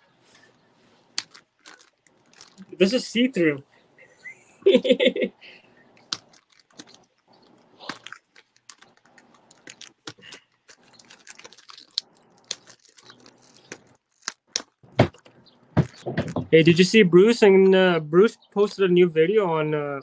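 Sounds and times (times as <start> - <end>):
plastic packaging crinkling: 0.3 - 2.8, 6.0 - 16.4.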